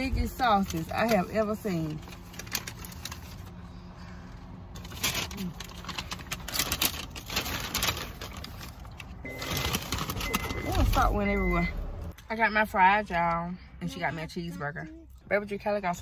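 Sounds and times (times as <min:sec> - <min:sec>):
low steady hum: 0:00.0 - 0:16.0
paper bag rustling and crinkling: 0:00.6 - 0:03.6, 0:04.8 - 0:11.2.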